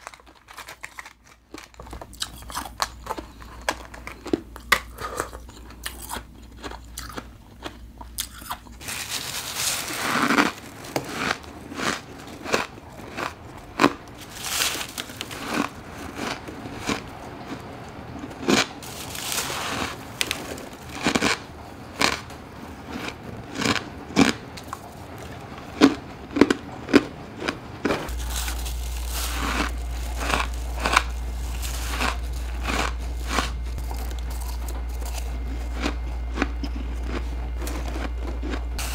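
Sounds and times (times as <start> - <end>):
crunching bites of frost: 0.0 - 16.3, 28.1 - 38.9
steady low hum: 0.0 - 38.9.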